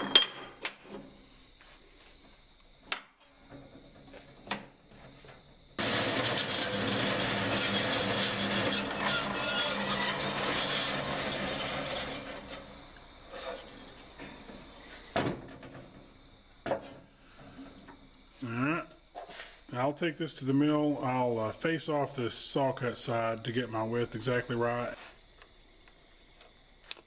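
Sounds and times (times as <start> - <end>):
bandsaw cutting metal: 5.8 - 13.9.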